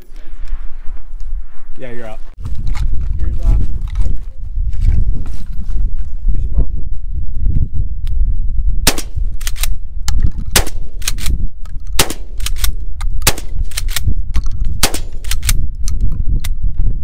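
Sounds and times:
steady low rumble: 0:00.0 - 0:17.0
gunshots: 0:08.8 - 0:09.6, 0:10.5 - 0:11.3, 0:12.0 - 0:13.9, 0:14.8 - 0:15.6.

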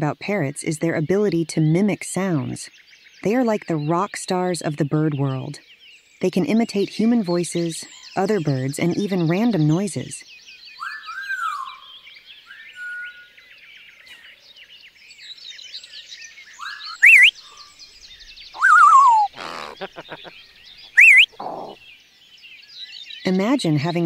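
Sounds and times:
birds chirping: 0:00.0 - 0:24.0
whistled bird glides: 0:16.5 - 0:21.8
sharp rising bird calls: 0:16.5 - 0:21.9
falling warbling bird call: 0:16.6 - 0:17.4, 0:18.6 - 0:21.8.

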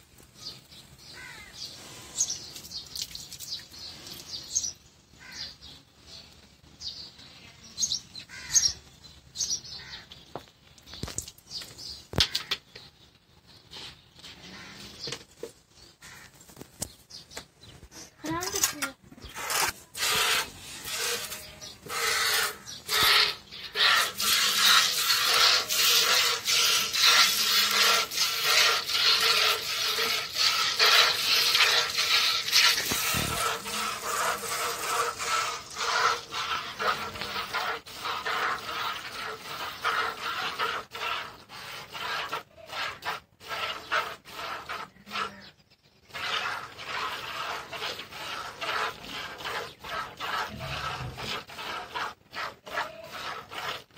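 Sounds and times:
milk squirting into bucket: 0:19.3 - 0:45.3, 0:46.1 - 0:53.9.

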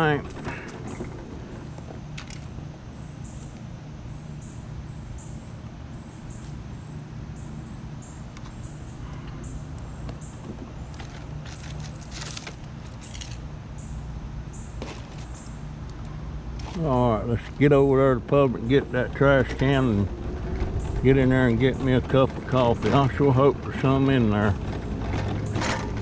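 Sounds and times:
scooter motor hum: 0:00.0 - 0:26.0
light rattling: 0:10.2 - 0:13.9.

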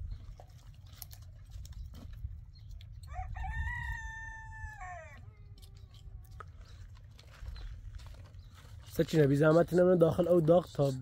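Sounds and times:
rooster crowing: 0:03.1 - 0:05.2.

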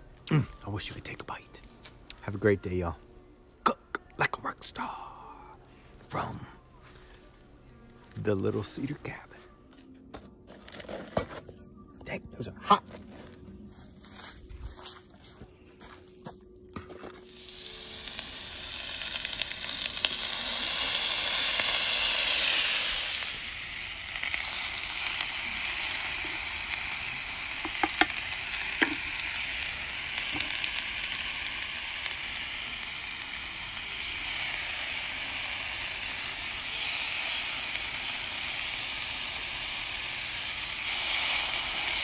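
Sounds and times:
vegetables sizzling on griddle: 0:17.2 - 0:42.0.

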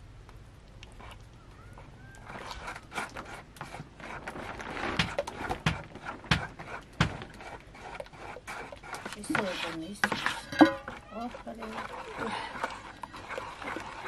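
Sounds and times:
batter squelching in bowl: 0:00.7 - 0:14.0
metal spoon knocking bowl: 0:10.1 - 0:11.0.

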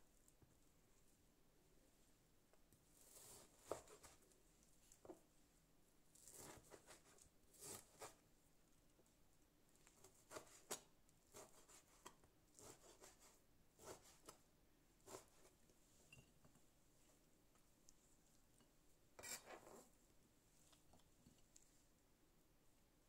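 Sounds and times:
knife cutting on plastic board: 0:03.1 - 0:04.2, 0:06.2 - 0:08.2, 0:10.0 - 0:14.4, 0:19.2 - 0:19.9.

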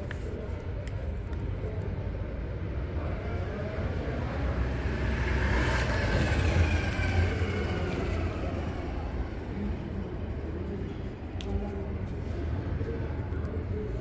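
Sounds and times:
road vehicle passing: 0:02.7 - 0:10.1.

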